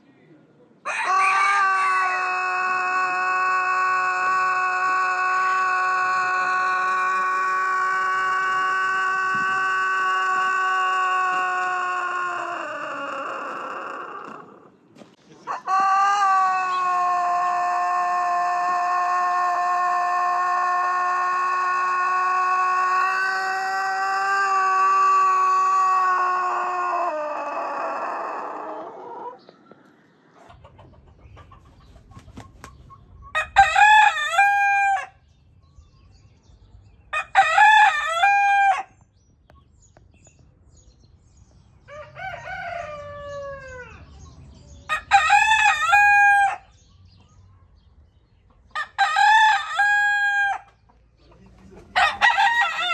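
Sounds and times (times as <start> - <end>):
rooster crowing: 0.8 - 14.6, 15.5 - 29.4, 33.4 - 35.2, 37.2 - 38.9, 41.9 - 44.0, 44.9 - 46.7, 48.8 - 50.7, 52.0 - 52.9.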